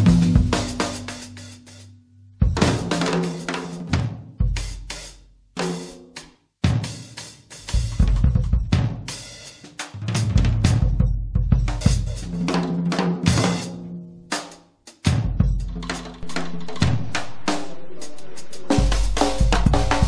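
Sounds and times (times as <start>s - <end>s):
cymbal hits: 0.0s - 4.0s
bass drum: 0.0s - 5.2s, 7.6s - 13.9s, 15.1s - 20.0s
deep bass line: 7.7s - 8.9s, 10.1s - 12.3s.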